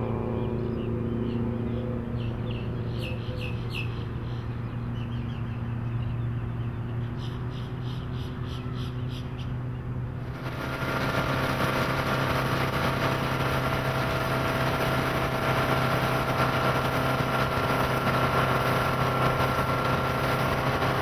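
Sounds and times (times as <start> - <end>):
distant motorboat engine drone: 0.0 - 21.0
birds chirping: 0.1 - 10.7.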